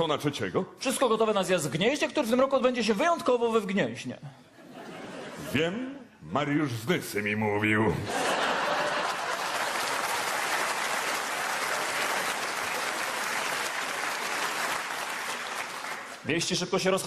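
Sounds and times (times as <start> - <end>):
audience laughing: 4.6 - 6.0, 8.0 - 10.3
audience applauding: 8.2 - 16.3.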